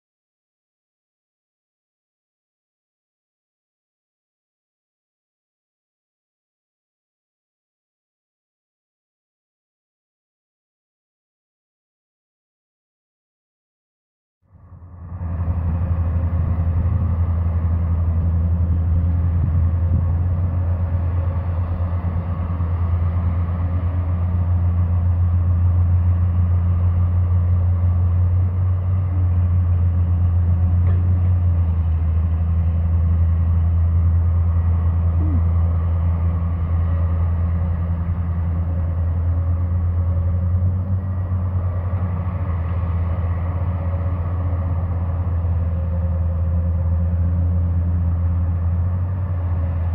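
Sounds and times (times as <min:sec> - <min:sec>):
large engine droning: 0:14.4 - 0:49.9.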